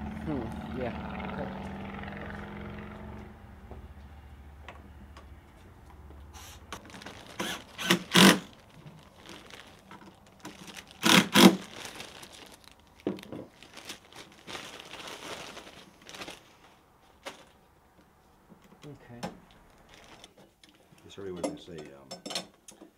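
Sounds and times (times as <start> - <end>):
rustling: 6.3 - 18.4, 19.5 - 20.9
cordless power driver running: 7.3 - 8.5, 11.0 - 11.6.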